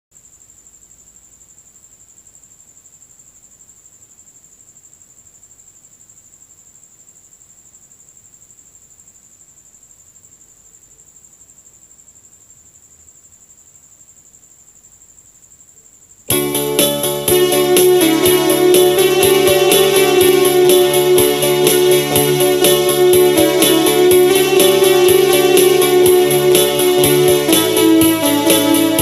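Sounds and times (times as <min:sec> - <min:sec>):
cricket chirping: 0:00.1 - 0:29.0
faint hiss: 0:00.1 - 0:29.0.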